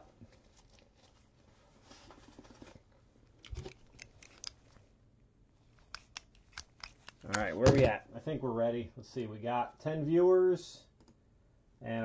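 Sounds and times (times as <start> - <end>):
soft rustle of gloved hands: 0.1 - 7.6.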